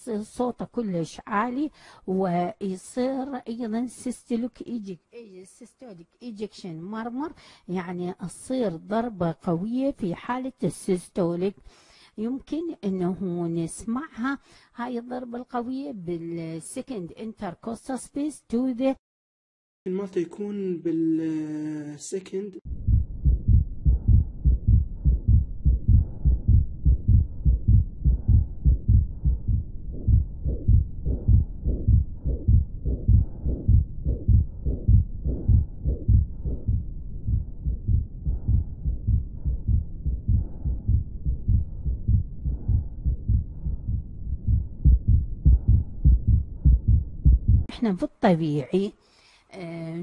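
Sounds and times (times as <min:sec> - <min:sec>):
fast heartbeat: 0:22.7 - 0:47.8
heart murmur: 0:22.7 - 0:47.8.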